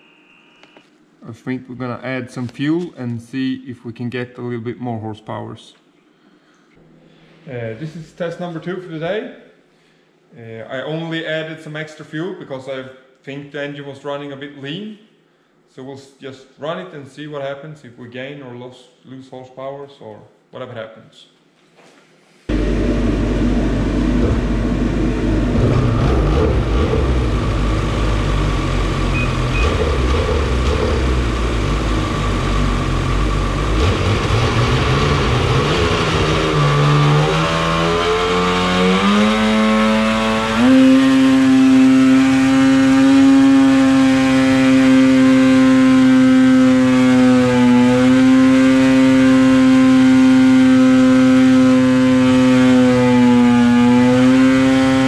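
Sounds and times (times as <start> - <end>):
snowmobile engine revving: 22.5 - 55.0.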